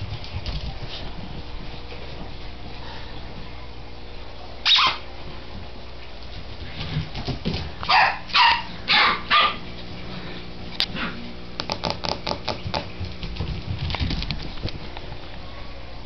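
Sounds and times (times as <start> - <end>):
puppy barking: 4.6 - 5.0, 7.9 - 9.7.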